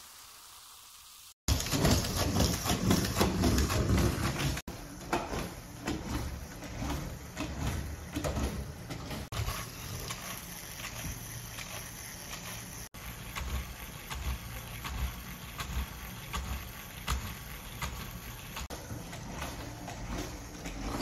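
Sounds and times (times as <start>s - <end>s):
toy robot motor clattering: 9.2s - 18.7s.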